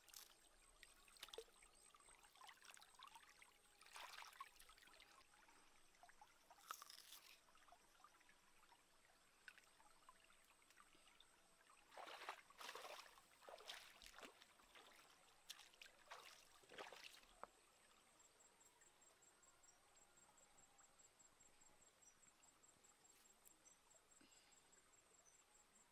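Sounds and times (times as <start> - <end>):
stream trickling over rocks: 0.0 - 19.0.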